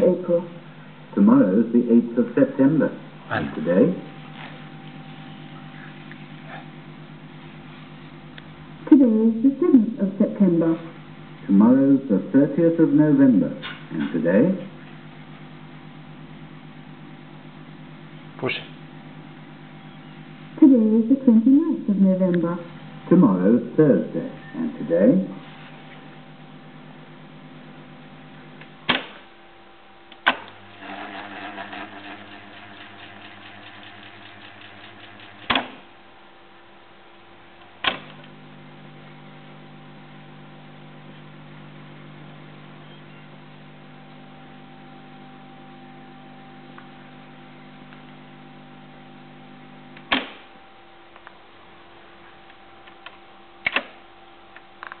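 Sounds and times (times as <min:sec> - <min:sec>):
tape transport whirring: 0:30.1 - 0:36.0
motor humming: 0:30.2 - 0:36.0.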